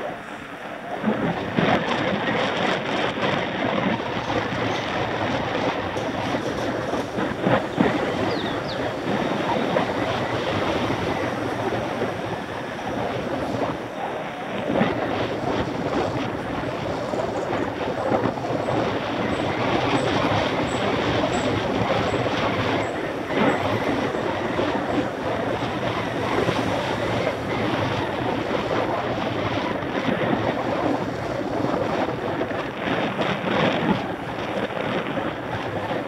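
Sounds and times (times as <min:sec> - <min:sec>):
bike rattling on road: 0:00.9 - 0:36.0.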